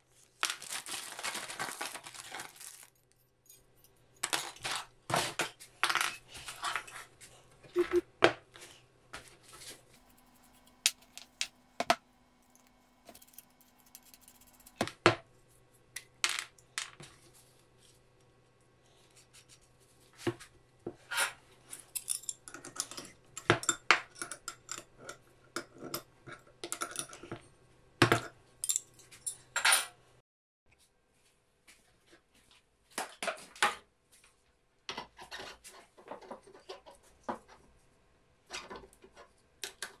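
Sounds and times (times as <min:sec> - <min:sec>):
small metal parts clinking: 0:01.9 - 0:04.9, 0:21.7 - 0:24.9, 0:28.6 - 0:29.5.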